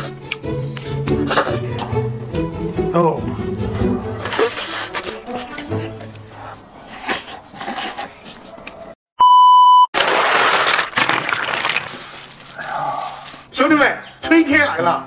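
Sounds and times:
loud test tone beep: 0:09.2 - 0:09.9.

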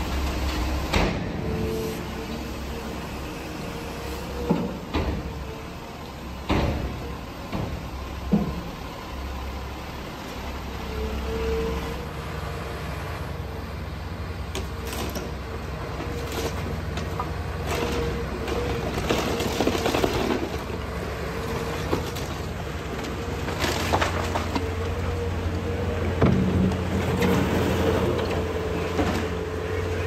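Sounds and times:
excavator diesel engine running: 0:00.0 - 0:30.0
wood cracking and crashing down: 0:16.0 - 0:20.8, 0:21.8 - 0:25.0.

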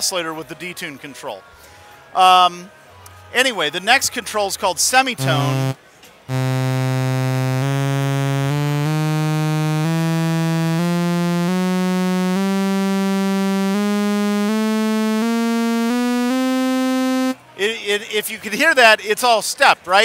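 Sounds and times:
buzzing oscillator tone stepping up: 0:05.2 - 0:17.4.

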